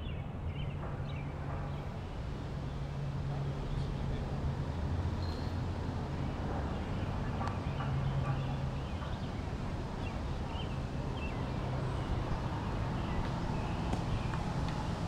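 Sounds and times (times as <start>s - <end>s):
faint bird chirps: 5.2s - 5.6s.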